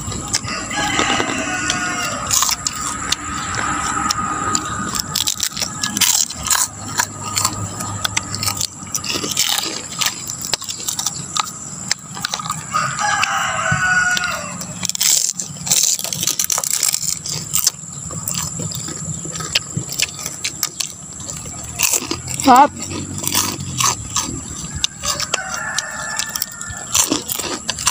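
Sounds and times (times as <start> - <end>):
crunchy food being chewed: 0.0 - 27.9
rooster crowing: 0.2 - 8.6, 12.4 - 15.2, 24.0 - 27.9.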